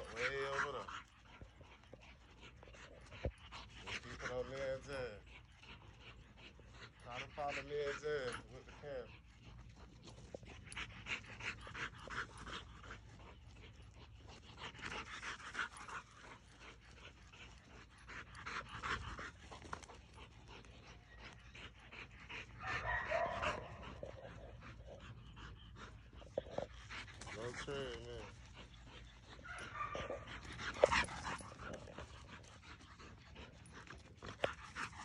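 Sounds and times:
dog panting rapidly: 0:00.0 - 0:35.0.

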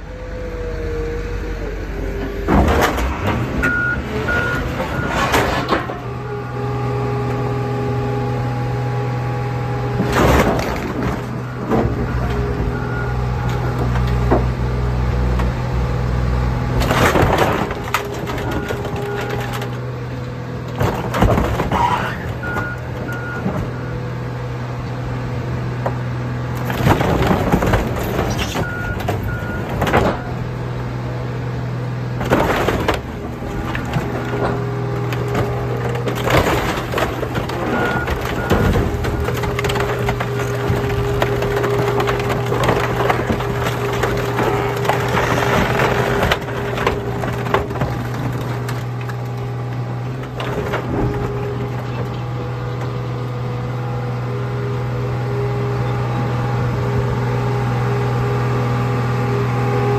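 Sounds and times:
metal and glass cracking and crunching: 0:16.8 - 0:23.2, 0:26.6 - 0:30.3, 0:32.2 - 0:52.4.

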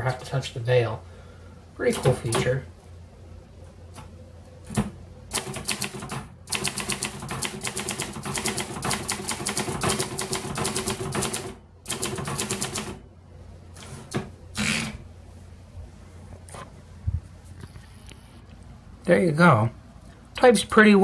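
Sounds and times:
manual typewriter keystrokes: 0:04.7 - 0:13.0.

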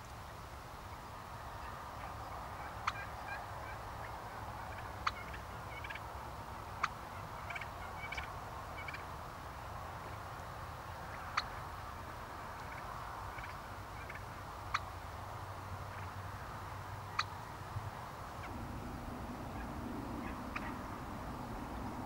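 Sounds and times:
wild turkeys calling: 0:01.4 - 0:09.1, 0:10.0 - 0:15.1, 0:15.8 - 0:21.6
steady low rumble: 0:17.0 - 0:22.0.

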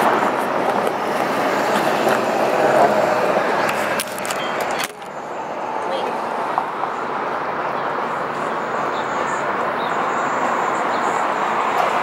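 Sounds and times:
steady rushing noise: 0:00.0 - 0:04.3.

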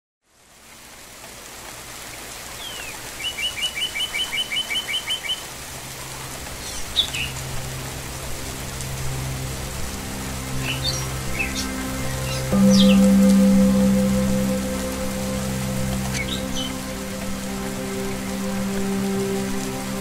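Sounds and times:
rain hiss: 0:00.2 - 0:20.0
low steady tone: 0:07.3 - 0:20.0
birds chirping: 0:10.4 - 0:20.0.

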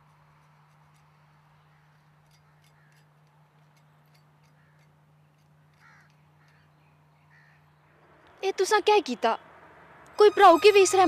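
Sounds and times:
faint crow caws: 0:01.6 - 0:03.3, 0:04.4 - 0:08.0.

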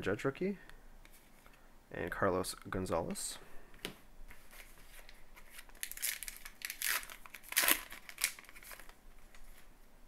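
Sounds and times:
wrapper crinkling and ripping: 0:05.0 - 0:09.0.

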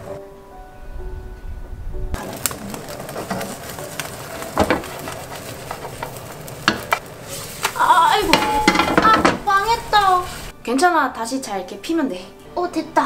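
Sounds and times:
egg sizzling in a frying pan: 0:02.2 - 0:10.6
spatula scraping a pan: 0:02.9 - 0:09.6
person speaking: 0:07.7 - 0:10.4.

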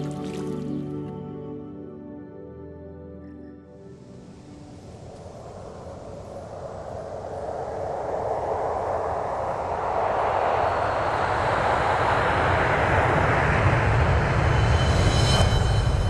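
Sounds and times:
rushing whoosh into deep rumble: 0:04.6 - 0:16.0.

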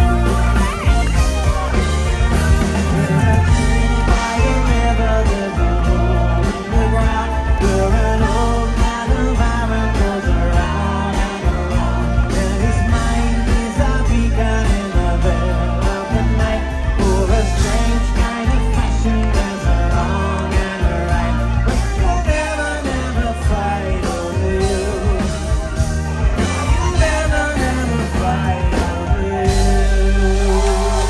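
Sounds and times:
live rock band playing: 0:00.0 - 0:31.0.

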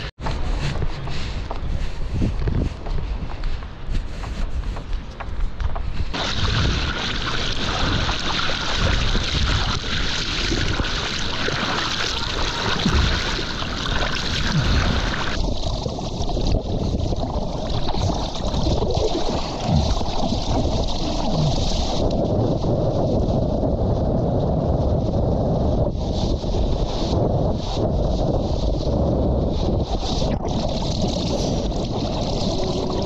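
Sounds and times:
water sloshing and splashing: 0:06.0 - 0:22.3, 0:30.0 - 0:33.0.

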